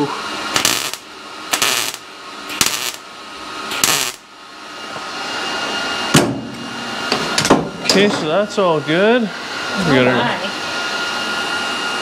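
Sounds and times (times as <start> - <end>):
welder sputtering hiss: 0.0 - 3.0, 3.7 - 4.3.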